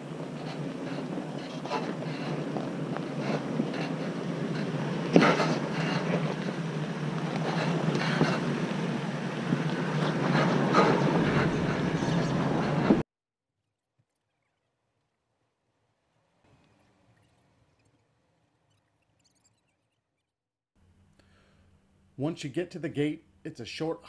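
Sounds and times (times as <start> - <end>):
truck engine and tyres rumbling: 0.0 - 13.0.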